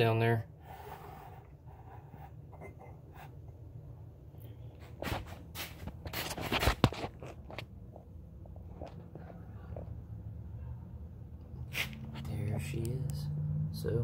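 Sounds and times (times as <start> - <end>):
low steady hum: 0.0 - 13.2
handling scraping and rustling: 4.8 - 7.7.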